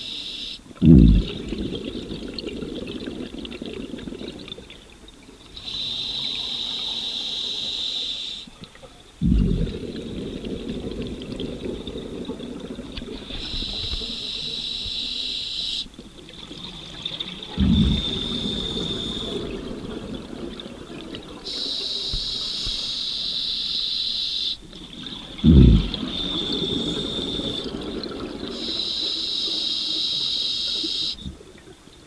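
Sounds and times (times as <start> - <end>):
exhaled bubbles gurgling: 0.7 - 23.6, 24.6 - 32.0
hissing regulator inhale: 5.6 - 8.5, 13.3 - 15.9, 17.6 - 19.5, 21.5 - 24.6.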